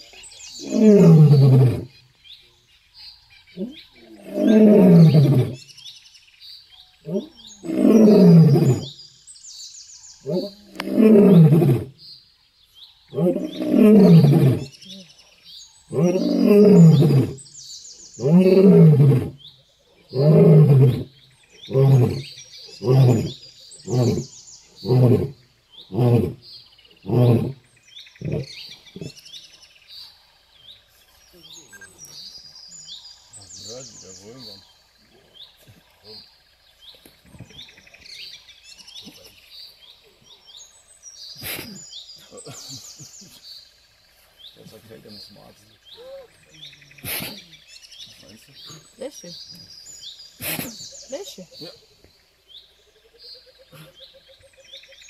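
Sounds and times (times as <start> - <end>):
faint birds chirping: 0.0 - 55.0
lion roaring and grunting: 0.6 - 1.9, 3.6 - 5.6, 7.0 - 8.9, 10.2 - 11.9, 13.1 - 15.0, 15.9 - 17.4, 18.2 - 19.5, 20.1 - 27.6, 28.2 - 29.3.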